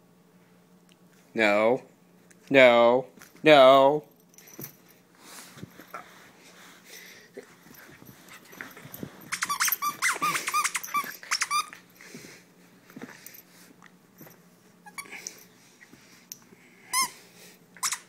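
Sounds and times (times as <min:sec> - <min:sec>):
soft scuffling: 0:04.5 - 0:11.2
puppy squeaking: 0:09.3 - 0:11.8.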